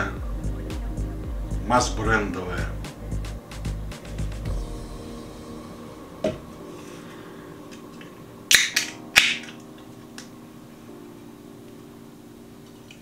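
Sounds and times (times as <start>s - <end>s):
hissing cracks of can opening: 7.7s - 10.3s.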